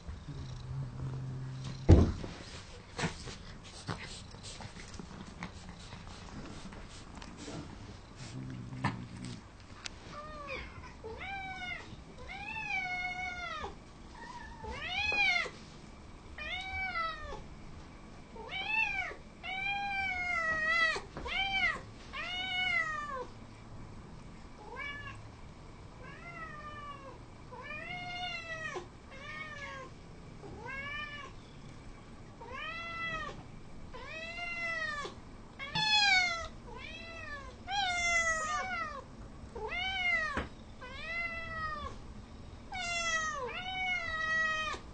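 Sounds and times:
cats meowing: 34.0 - 42.0, 42.7 - 44.8.

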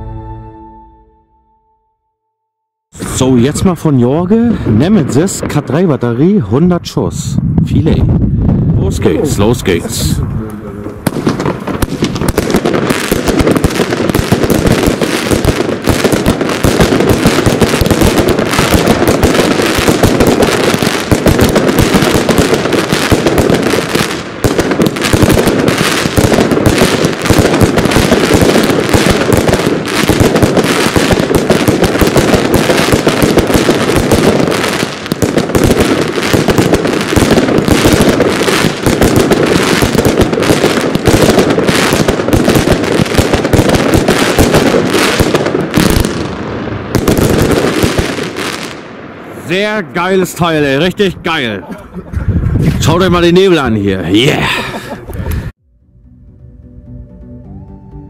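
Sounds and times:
firework battery firing: 10.8 - 49.3.

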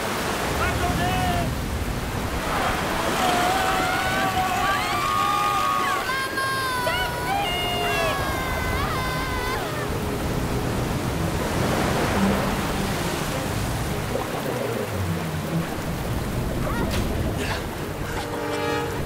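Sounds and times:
waves surging and breaking: 0.0 - 19.0.

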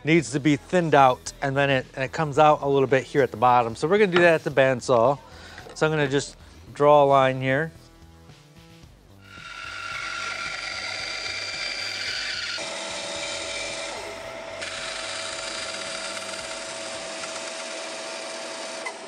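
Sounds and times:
bandsaw cutting wood: 9.2 - 19.0.

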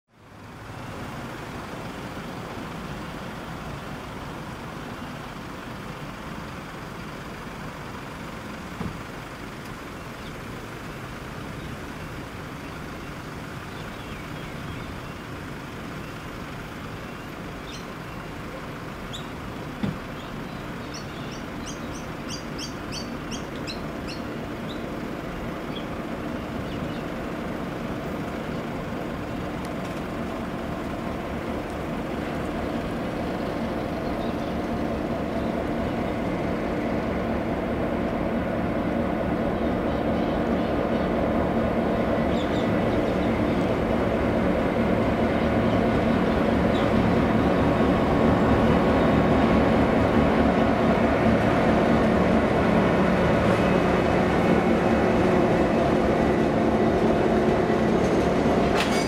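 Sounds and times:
diesel locomotives running: 0.1 - 59.0
birds chirping: 11.5 - 29.6, 30.2 - 36.4, 42.1 - 43.8, 45.4 - 47.9.

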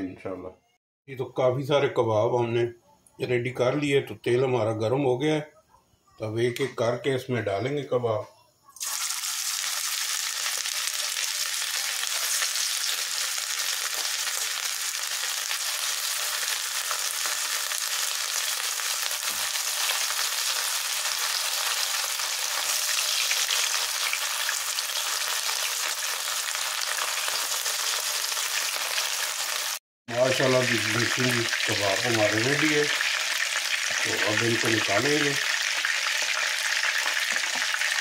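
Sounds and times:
kebabs sizzling in hot oil: 8.8 - 38.0.

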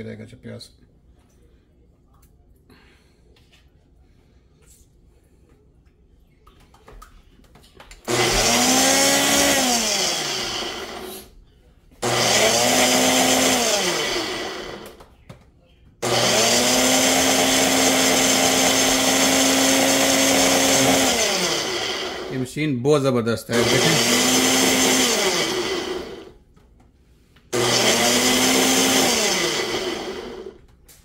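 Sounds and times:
blender motor whirring: 8.1 - 11.3, 12.0 - 15.0, 16.0 - 22.5, 23.5 - 26.4, 27.5 - 30.6.

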